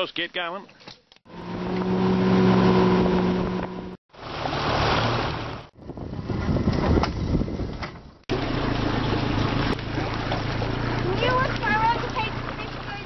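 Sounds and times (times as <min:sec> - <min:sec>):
outboard motor running: 0:01.3 - 0:07.2, 0:08.3 - 0:13.0
water rushing past: 0:01.9 - 0:07.4, 0:08.3 - 0:13.0
wind on microphone: 0:05.7 - 0:08.2.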